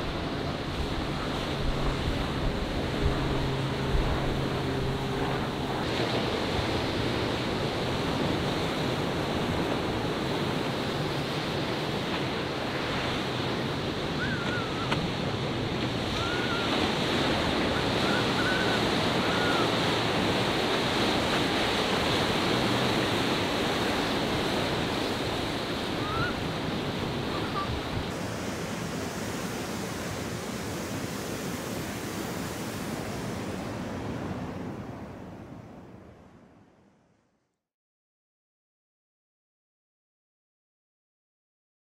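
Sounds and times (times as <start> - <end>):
wind on microphone: 0.0 - 28.2
ocean waves breaking: 0.0 - 36.2.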